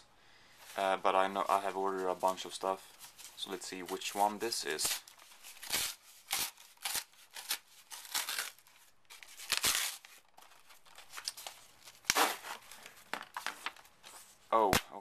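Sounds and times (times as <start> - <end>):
cardboard tearing: 4.7 - 12.6.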